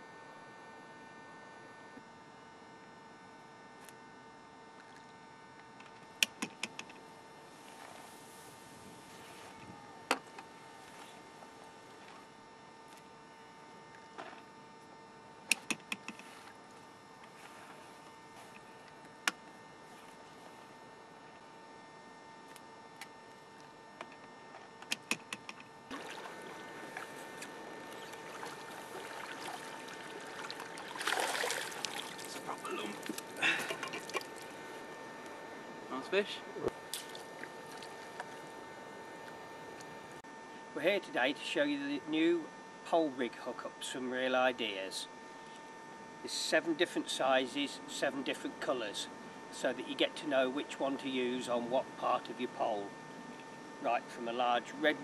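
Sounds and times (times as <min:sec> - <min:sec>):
electrical hum: 0:00.0 - 0:55.0
water splashing: 0:25.9 - 0:34.6, 0:36.9 - 0:38.5.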